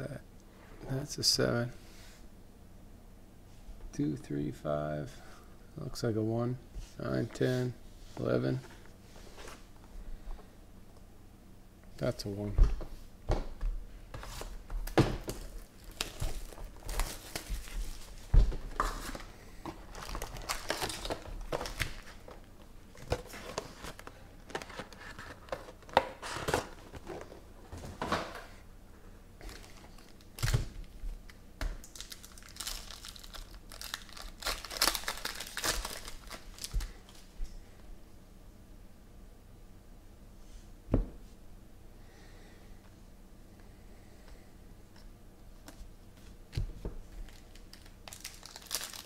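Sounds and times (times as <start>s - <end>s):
foil packs crinkling and tearing: 14.8s - 22.4s, 29.4s - 30.8s, 31.8s - 37.3s, 47.2s - 49.0s.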